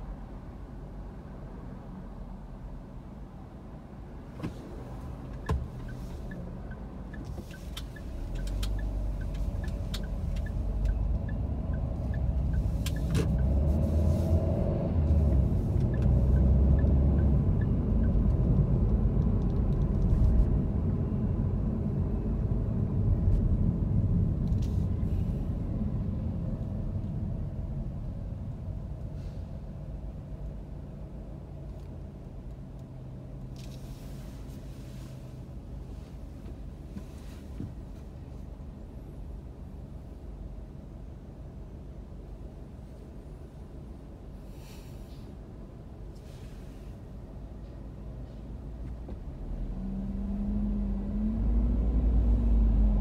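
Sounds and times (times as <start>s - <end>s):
car engine and road rumble: 0.0s - 53.0s
light regular ticking: 5.4s - 13.5s.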